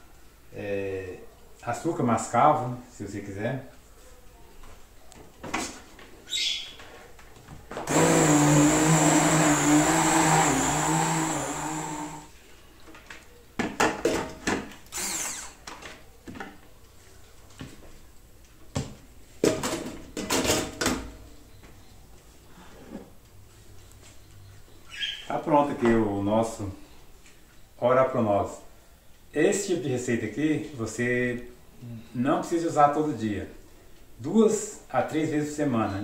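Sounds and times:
electric blender whirring: 7.9s - 12.3s, 14.9s - 15.6s.

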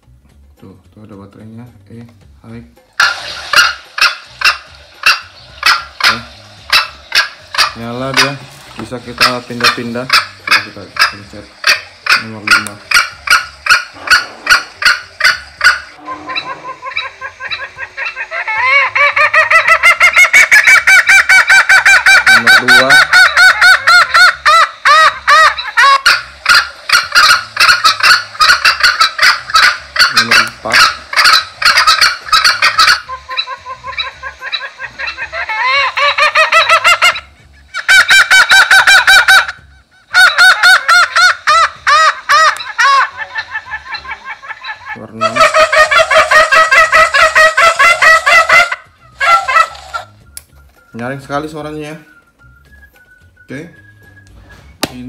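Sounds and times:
shrill bird calls from loudspeaker: 9.2s - 50.2s.

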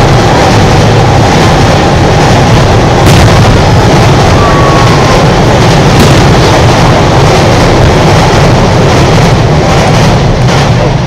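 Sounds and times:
fireworks rumbling bursts: 0.0s - 11.0s
sharp firework bang: 2.9s - 6.9s.

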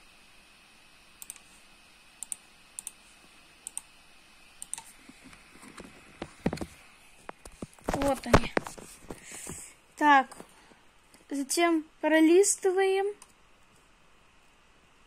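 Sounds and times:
computer mouse clicks: 1.2s - 1.6s, 2.2s - 3.0s, 3.6s - 3.9s, 4.6s - 6.7s, 13.2s - 13.4s.

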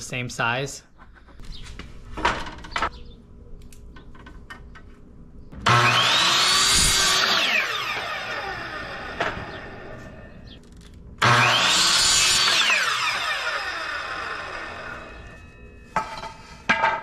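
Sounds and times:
miter saw cutting wood: 5.6s - 10.6s, 11.2s - 15.5s.

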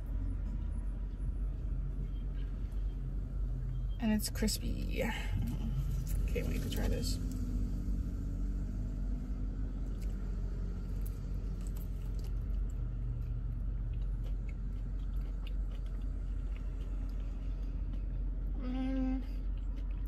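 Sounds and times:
steady low hum: 0.0s - 20.0s
person chewing crispy chicken: 10.9s - 20.0s.

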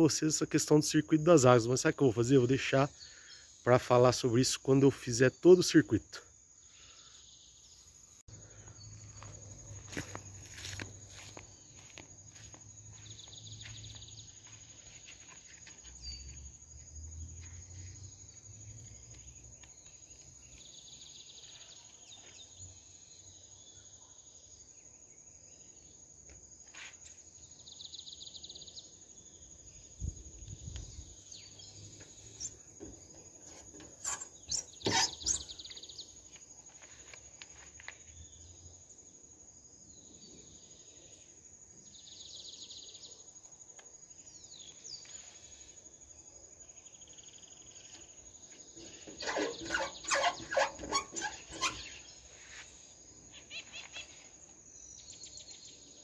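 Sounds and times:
insect high drone: 0.0s - 56.0s
insect buzzing call: 29.3s - 36.4s, 44.5s - 55.8s.

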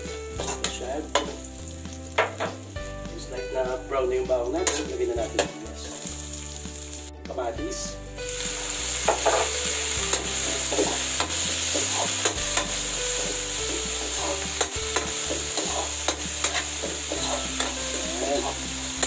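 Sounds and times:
food sizzling: 0.0s - 19.0s
ladle scraping a wok: 8.9s - 19.0s.

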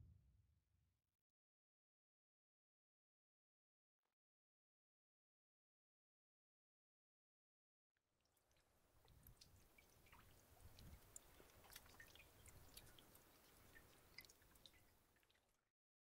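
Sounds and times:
stream trickling: 8.2s - 15.7s
water drips: 8.2s - 15.7s.

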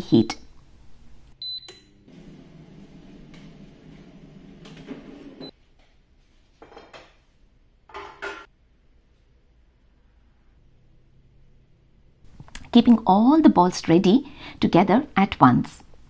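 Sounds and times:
air fryer humming: 0.8s - 5.5s
touch panel beeps: 1.4s - 1.9s.

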